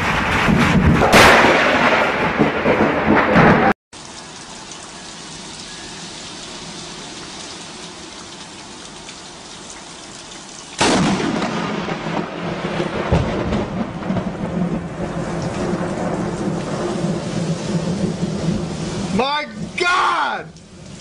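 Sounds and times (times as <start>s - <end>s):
thunderclap rumbling: 0.0s - 3.8s, 10.8s - 19.8s
steady rain: 0.0s - 21.0s.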